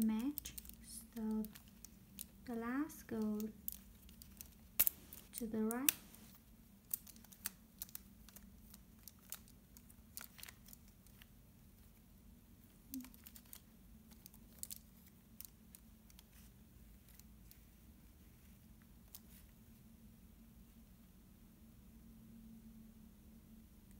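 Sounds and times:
plastic puzzle pieces clicking: 0.0 - 11.3, 12.9 - 17.6.

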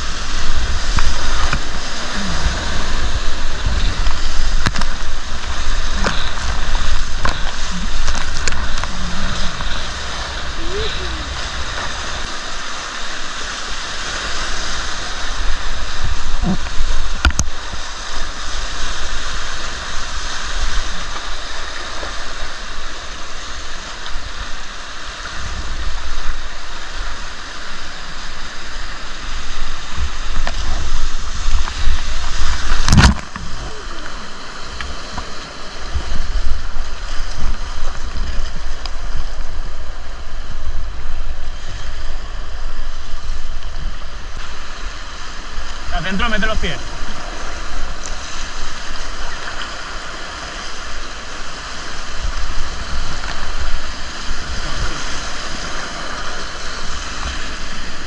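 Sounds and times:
low rumble: 0.0 - 12.4
river water rushing: 0.0 - 58.0.

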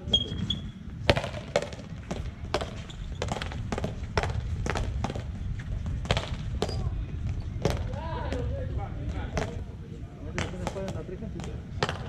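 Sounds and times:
paddles striking ball: 1.0 - 6.8, 7.6 - 9.7, 10.3 - 12.0.

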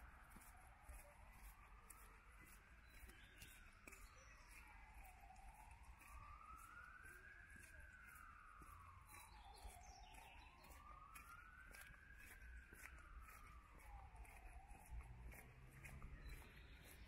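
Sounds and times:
faint emergency siren wailing: 0.0 - 17.0.

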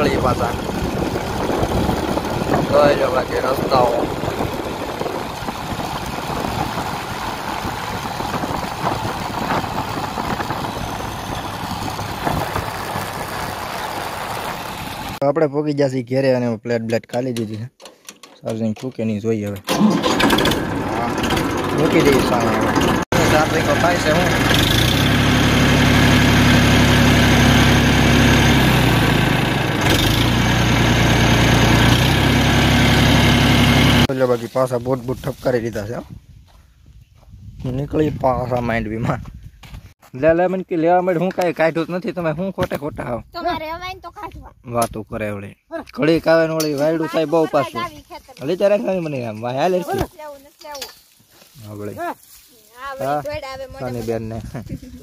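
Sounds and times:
road noise: 0.0 - 15.2, 19.7 - 34.4
vehicle engine running: 0.0 - 15.2, 20.0 - 34.1.

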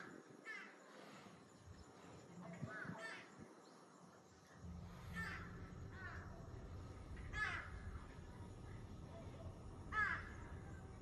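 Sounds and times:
steady low rumble: 4.6 - 11.0
crow cawing: 4.7 - 8.3, 9.1 - 10.9.

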